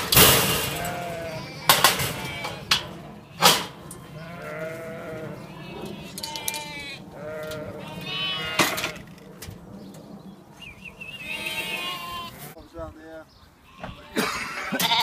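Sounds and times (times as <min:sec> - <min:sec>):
sheep and lambs bleating: 0:00.4 - 0:09.1, 0:11.1 - 0:12.6, 0:13.6 - 0:15.0.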